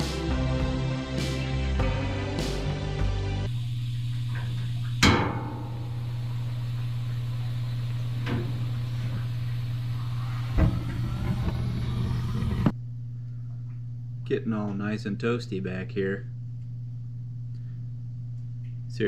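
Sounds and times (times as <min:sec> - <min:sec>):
steady low hum: 0:00.0 - 0:19.0
burner igniting thump: 0:07.9 - 0:12.7.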